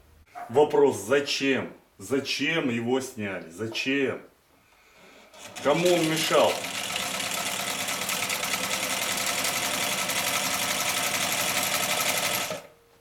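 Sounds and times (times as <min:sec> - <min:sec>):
sewing machine stitching: 0:05.3 - 0:12.7.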